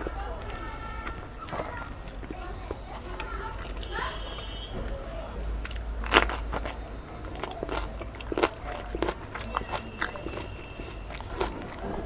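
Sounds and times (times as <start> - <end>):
crisp papad crunching: 5.7 - 12.0.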